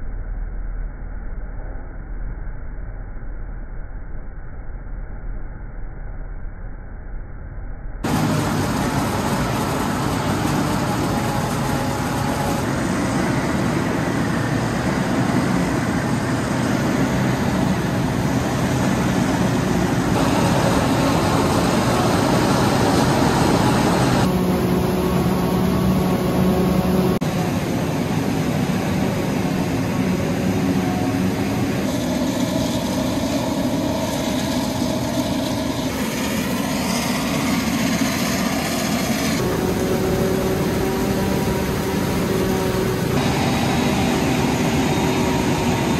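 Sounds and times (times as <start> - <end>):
forage harvester droning: 8.0 - 45.9.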